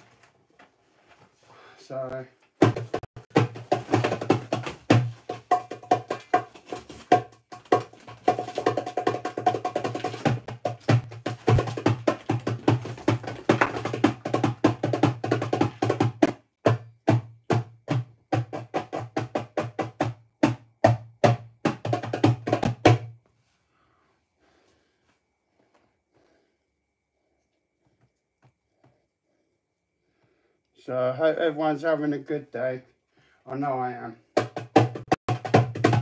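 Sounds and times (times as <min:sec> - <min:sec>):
drums being played: 0:02.6 - 0:23.1, 0:34.4 - 0:36.0.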